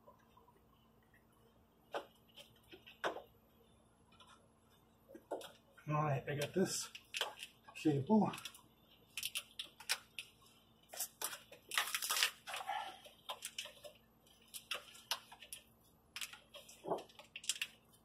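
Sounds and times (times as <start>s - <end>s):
cables clicking and rustling: 4.0s - 18.0s.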